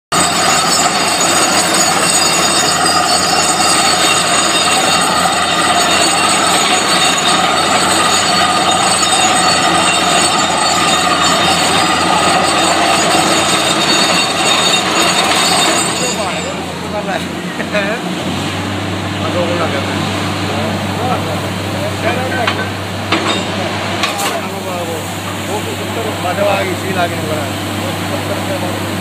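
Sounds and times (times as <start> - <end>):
high whining tones: 0.1 - 17.2
drilling rig mechanical din: 0.1 - 18.1.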